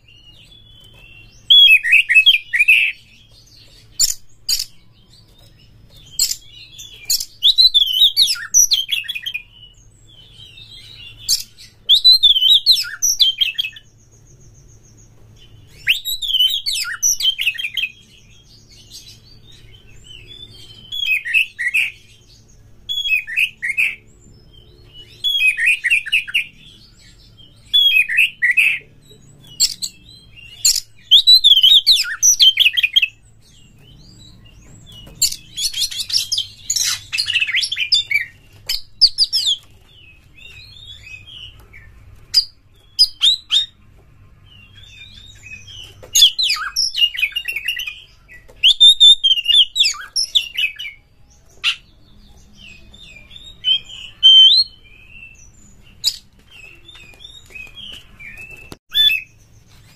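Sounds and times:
bird singing whistled phrases: 0:15.7 - 0:17.9, 0:29.6 - 0:33.1, 0:45.0 - 0:51.0, 0:52.6 - 0:59.3.

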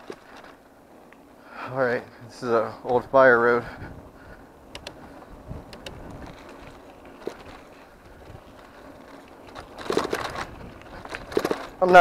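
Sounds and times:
tyres crunching on gravel: 0:00.0 - 0:01.3, 0:05.0 - 0:12.0
bike rattles and clicks: 0:00.0 - 0:01.4, 0:02.0 - 0:12.0.

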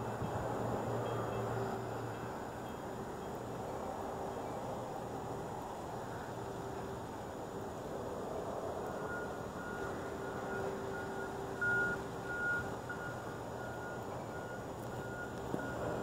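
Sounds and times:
low engine hum: 0:00.0 - 0:16.0
reversing alarm beeping: 0:08.8 - 0:16.0.

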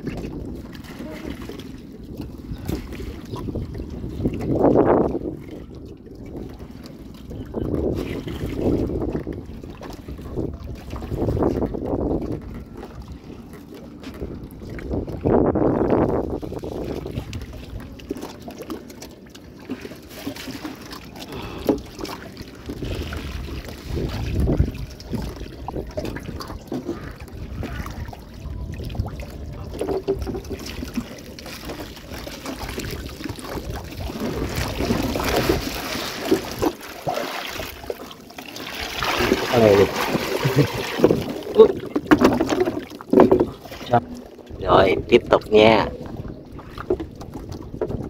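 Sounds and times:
wind rumble on microphone: 0:00.0 - 0:18.7, 0:22.6 - 0:36.8, 0:38.8 - 0:48.0
water dripping and splashing: 0:00.0 - 0:48.0
knocks against boat: 0:41.0 - 0:43.6.

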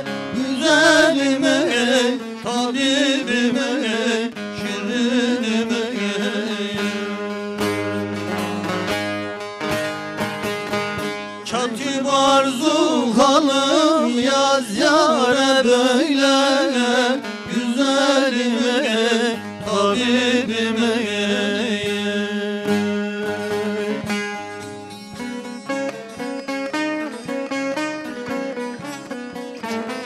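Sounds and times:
man singing ornamented notes: 0:00.0 - 0:08.9, 0:11.4 - 0:24.6
long-necked lute playing folk tune: 0:00.0 - 0:30.0.

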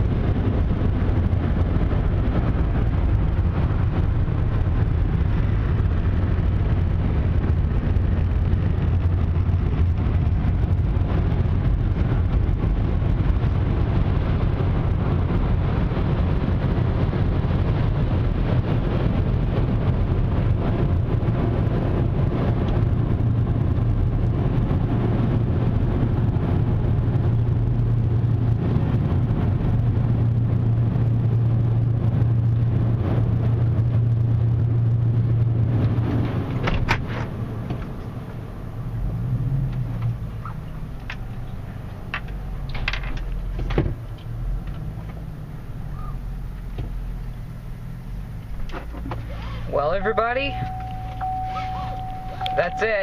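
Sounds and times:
car wash blower dryers roaring: 0:48.0 - 0:53.0.

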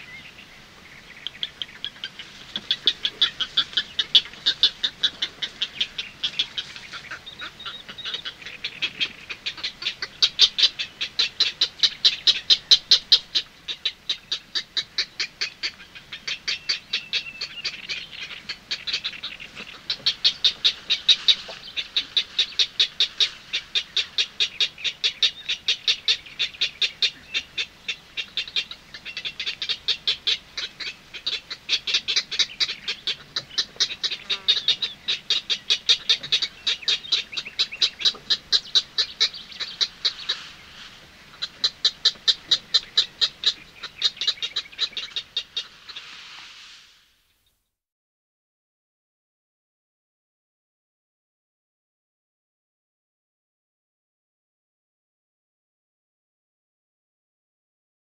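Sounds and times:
heron chicks calling: 0:00.0 - 0:46.1
heron chicks bill-clicking: 0:01.1 - 0:46.0.

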